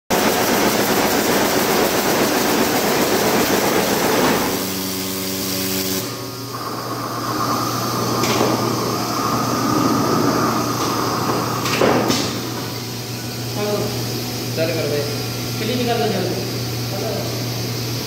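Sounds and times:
low hum with higher whine: 0.1 - 18.0
steady tones: 2.9 - 16.6.

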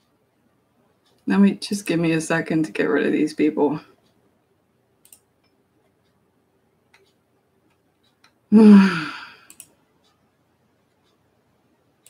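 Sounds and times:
faint clicks: 5.0 - 6.2, 6.8 - 8.4, 9.4 - 10.2
woman sighing: 8.5 - 9.5.

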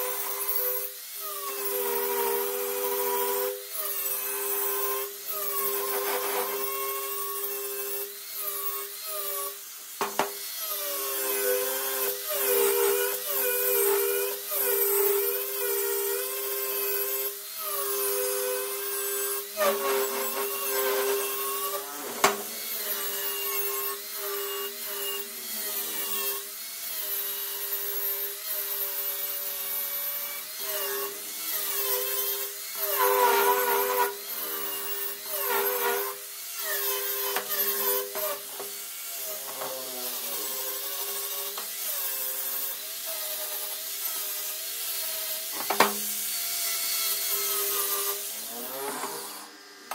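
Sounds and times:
angle grinder sanding metal: 0.0 - 49.9.

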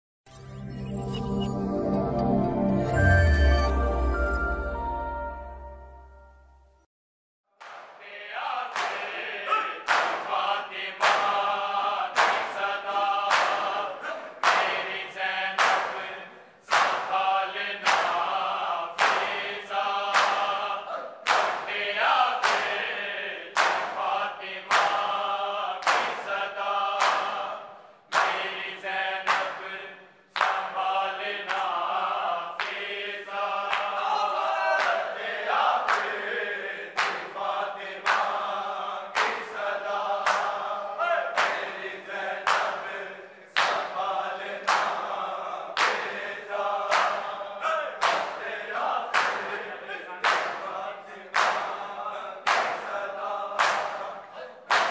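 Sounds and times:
hand-on-chest slaps: 7.6 - 8.0, 8.7 - 9.2, 9.8 - 11.5, 12.2 - 13.8, 14.4 - 14.8, 15.5 - 16.1, 16.7 - 17.2, 17.8 - 18.3, 19.0 - 19.4, 20.1 - 20.5, 21.2 - 21.8, 22.4 - 22.8, 23.5 - 24.1, 24.7 - 25.1, 25.8 - 26.3, 27.0 - 27.4, 28.1 - 28.5, 29.3 - 29.6, 30.4 - 30.8, 31.4 - 31.8, 32.6 - 32.8, 35.9 - 36.2, 37.0 - 37.4, 38.0 - 38.5, 39.2 - 39.6, 40.2 - 40.6, 41.4 - 41.7, 42.5 - 42.8, 43.6 - 44.0, 44.6 - 45.1, 45.8 - 46.1, 46.9 - 47.3, 48.0 - 48.4, 49.1 - 49.6, 50.2 - 50.7, 51.3 - 51.8, 52.5 - 53.0, 53.6 - 54.1, 54.7 - 54.9
men chanting in unison: 8.0 - 54.9.

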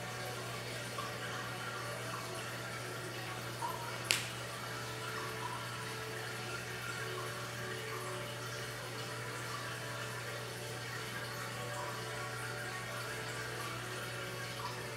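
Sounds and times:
sharp click: 4.1 - 4.4.

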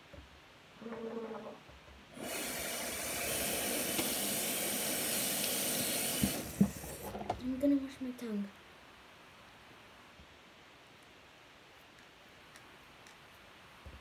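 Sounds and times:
tap running into sink: 2.2 - 7.4.

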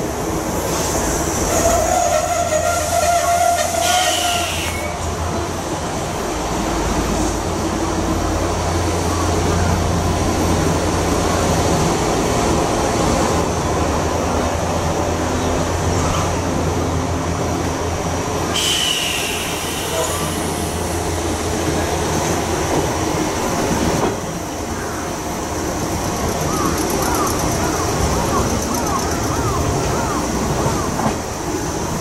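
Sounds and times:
electric train hum: 0.0 - 32.0
train pulling away: 0.0 - 32.0
sharp air hiss: 3.6 - 5.0, 18.5 - 21.0.

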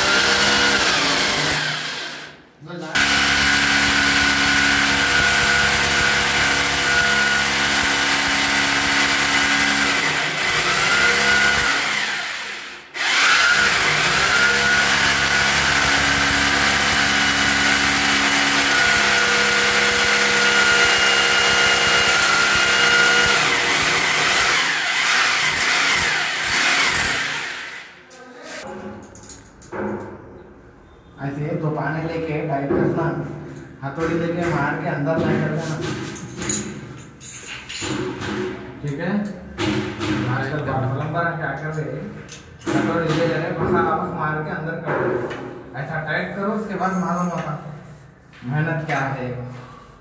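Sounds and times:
electric drill boring into tile: 0.0 - 2.3, 3.0 - 27.9.

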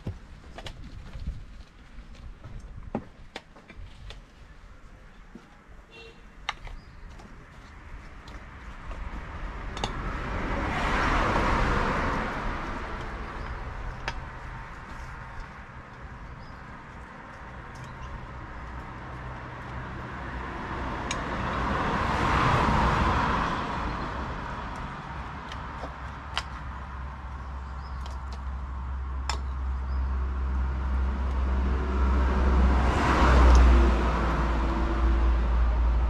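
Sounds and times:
vehicles passing by: 0.0 - 36.0.

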